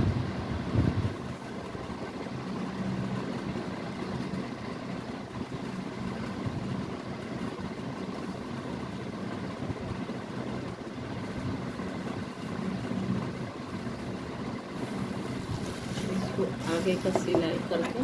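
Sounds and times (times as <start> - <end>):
cloth rustling: 14.8 - 17.4.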